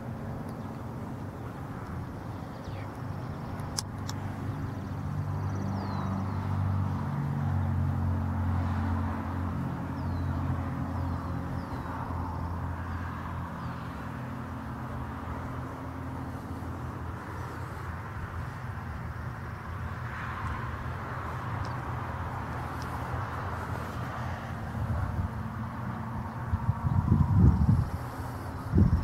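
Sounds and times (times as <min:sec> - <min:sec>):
low engine hum: 0:00.0 - 0:29.0.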